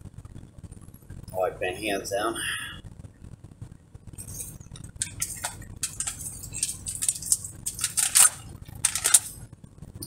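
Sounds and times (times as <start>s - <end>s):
hands rubbing and rustling: 4.2s - 9.3s.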